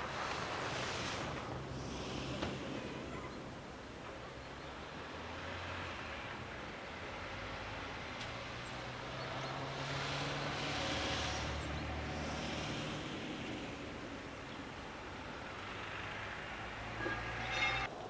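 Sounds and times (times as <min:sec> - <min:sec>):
low traffic engine hum: 0:00.0 - 0:18.0
vehicle passing: 0:04.9 - 0:18.0.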